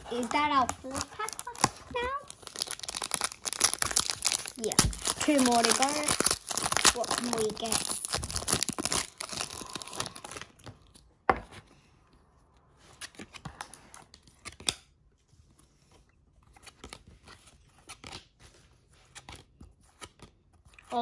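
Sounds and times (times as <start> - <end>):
foil wrapper crinkling: 0.0 - 10.6.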